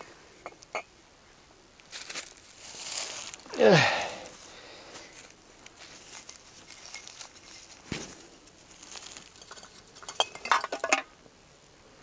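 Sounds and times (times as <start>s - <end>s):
glass bottles clinking: 9.4s - 11.1s.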